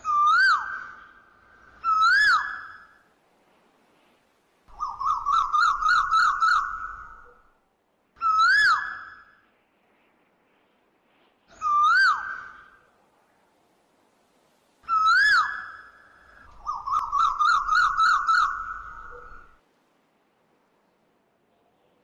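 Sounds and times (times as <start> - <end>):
bird whistling: 11.6 - 12.7, 16.6 - 19.5
bird warbling trill: 16.6 - 19.5.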